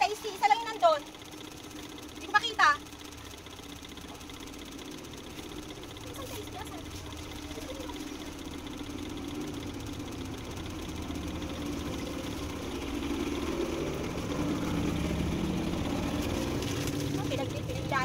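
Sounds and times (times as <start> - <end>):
motor humming: 0.0 - 18.0.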